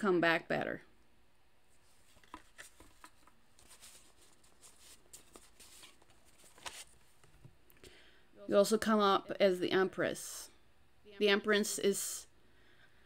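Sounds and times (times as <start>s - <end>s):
cards rustling and clicking: 1.8s - 7.5s.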